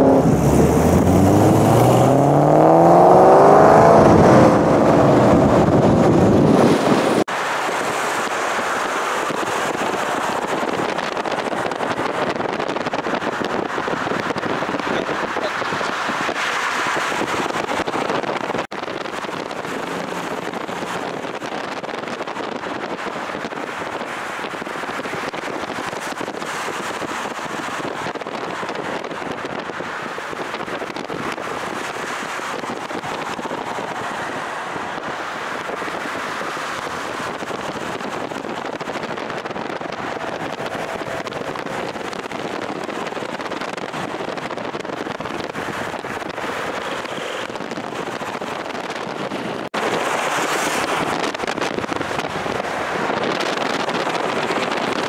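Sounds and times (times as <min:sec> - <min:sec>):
wind buffeting microphone: 0:00.0 - 0:55.0.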